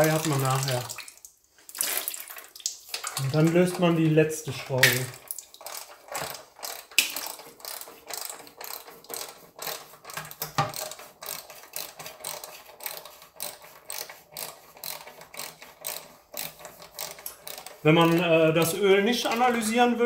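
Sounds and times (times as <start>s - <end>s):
ratchet wrench clicking: 5.6s - 18.2s.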